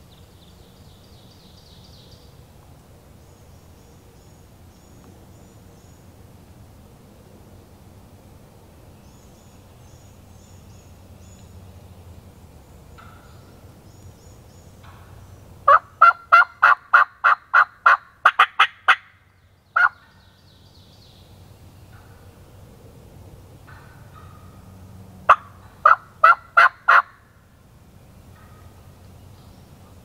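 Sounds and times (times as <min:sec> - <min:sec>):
turkey alarm putts: 0:25.3 - 0:27.2.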